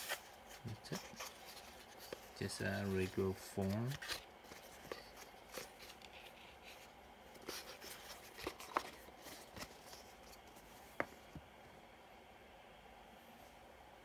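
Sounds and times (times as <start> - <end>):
cardboard box rubbing and rustling: 0.0 - 10.8.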